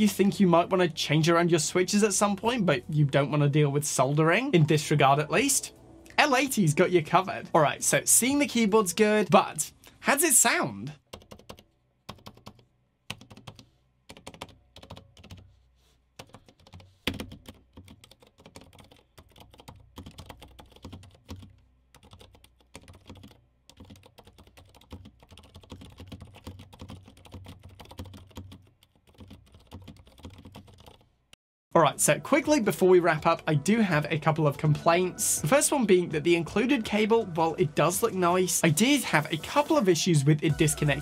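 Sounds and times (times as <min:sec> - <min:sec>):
quiet keyboard typing: 0:11.0 - 0:15.6, 0:16.2 - 0:31.1.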